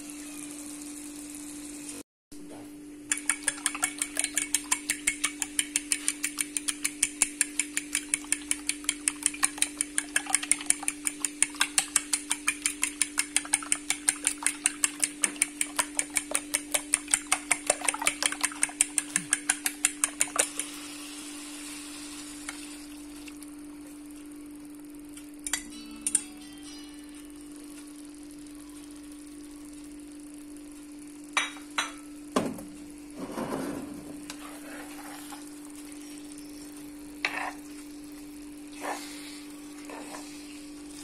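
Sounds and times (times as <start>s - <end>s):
fork beating eggs in a bowl: 3.1s - 20.9s, 34.3s - 41.0s.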